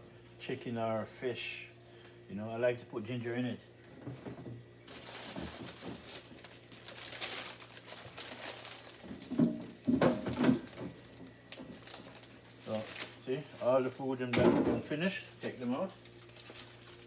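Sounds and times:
plastic bags crinkling: 4.9s - 17.0s.

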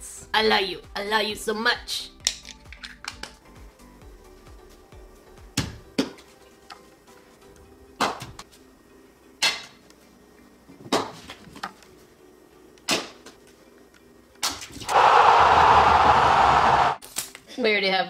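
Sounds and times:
arena crowd cheering: 14.9s - 17.0s.

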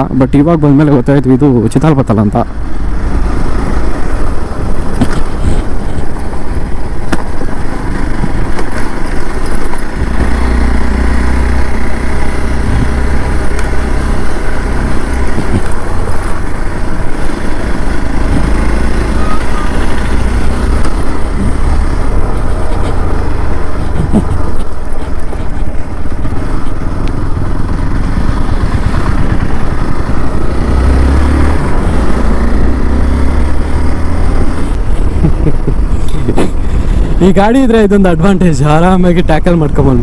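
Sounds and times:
motorcycle engine running: 0.0s - 40.0s
wind rumble on microphone: 3.6s - 10.6s, 12.6s - 13.4s, 14.8s - 27.1s.

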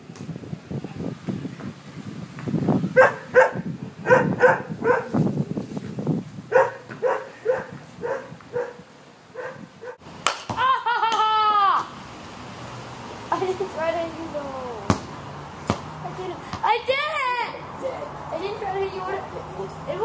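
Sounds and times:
dog barking: 3.0s - 5.1s, 6.5s - 8.8s, 9.4s - 10.0s.

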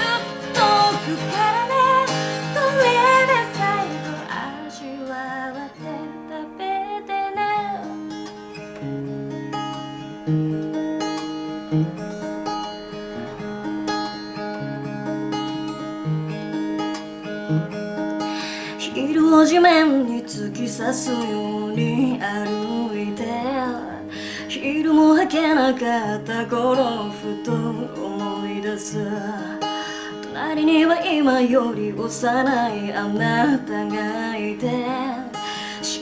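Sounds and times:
woman singing: 0.0s - 8.2s, 18.6s - 36.0s
acoustic guitar: 0.0s - 36.0s.

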